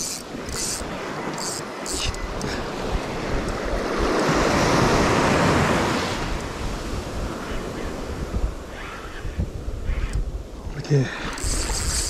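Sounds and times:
sea surf washing up beach: 0:00.0 - 0:08.7
wind buffeting microphone: 0:00.0 - 0:12.0.

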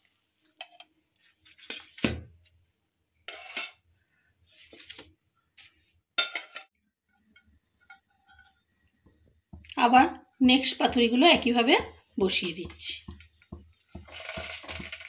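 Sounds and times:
metal spatula scraping a pan: 0:00.6 - 0:01.9, 0:03.2 - 0:03.9, 0:04.5 - 0:08.9, 0:12.2 - 0:15.0.

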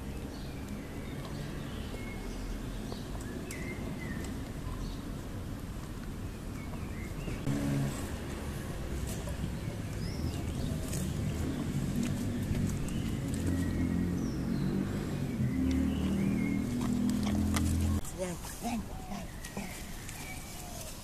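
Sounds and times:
small birds chirping: 0:00.0 - 0:21.0
puppy chewing rope toy: 0:16.4 - 0:18.0.

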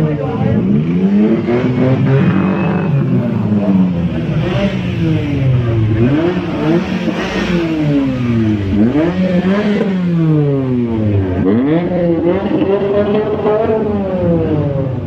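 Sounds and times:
loud car exhausts revving: 0:00.0 - 0:15.0.

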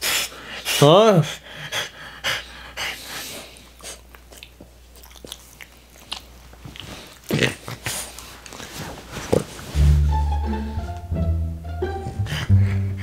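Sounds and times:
dog chewing and mouthing: 0:03.5 - 0:09.7
music: 0:09.7 - 0:13.0.

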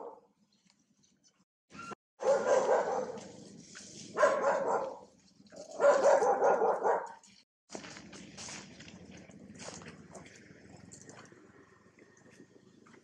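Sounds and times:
animal barking calls: 0:02.2 - 0:03.3, 0:04.1 - 0:07.2.

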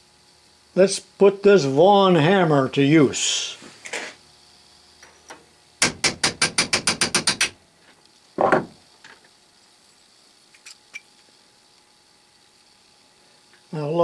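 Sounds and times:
loud metal knock with a ring: 0:05.8 - 0:07.5
hammer tapping a metal punch: 0:05.8 - 0:07.6.

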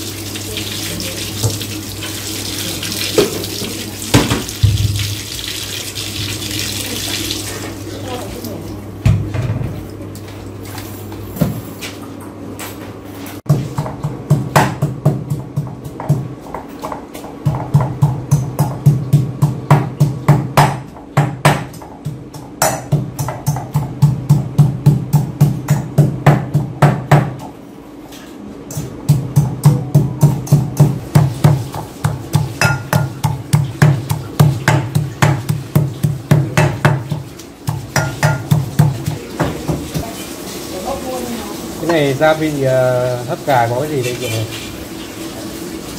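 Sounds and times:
pestle pounding in mortar: 0:13.5 - 0:27.6, 0:28.7 - 0:40.0.

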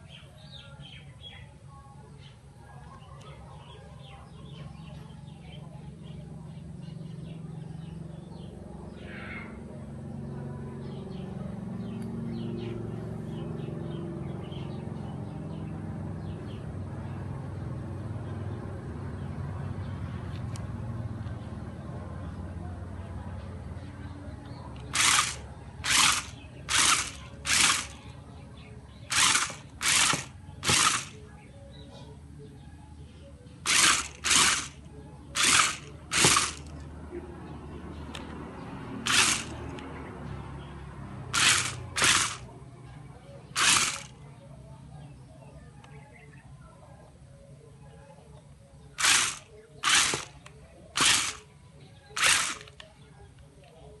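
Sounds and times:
toy car electric motors whirring: 0:24.8 - 0:28.2, 0:29.1 - 0:31.3, 0:33.6 - 0:36.8, 0:39.0 - 0:39.8, 0:41.3 - 0:42.5, 0:43.5 - 0:44.2, 0:49.0 - 0:51.5, 0:52.1 - 0:52.9.

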